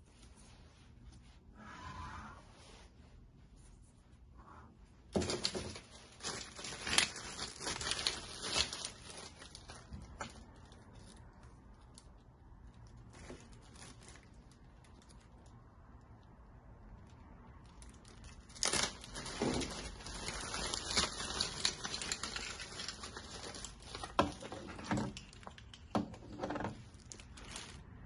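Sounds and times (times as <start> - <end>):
plastic bag crinkling: 5.1 - 15.7, 17.0 - 28.0.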